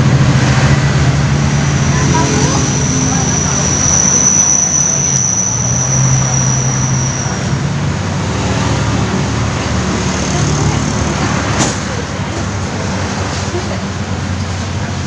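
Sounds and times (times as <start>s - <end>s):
road traffic passing: 0.0s - 15.0s
thin high whine: 1.2s - 7.7s.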